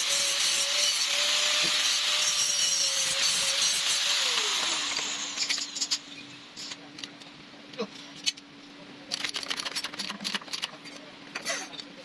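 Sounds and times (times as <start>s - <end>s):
power tool winding down: 1.0s - 5.5s.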